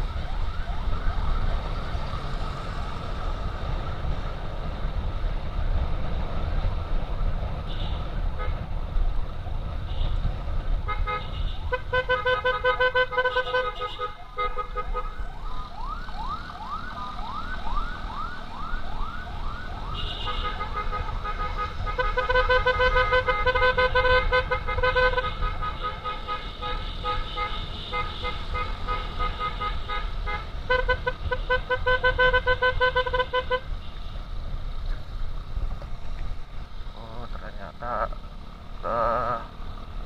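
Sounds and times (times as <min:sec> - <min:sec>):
electronic emergency siren: 0:00.0 - 0:04.1, 0:14.2 - 0:21.8
motorcycle road noise: 0:00.0 - 0:40.0.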